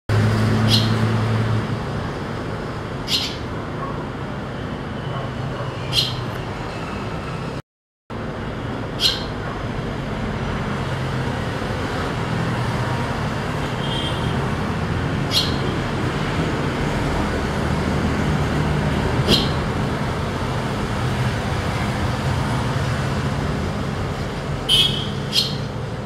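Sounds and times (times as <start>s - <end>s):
traffic noise: 0.1s - 26.0s
swallow chirps: 0.7s - 1.0s, 15.3s - 15.6s.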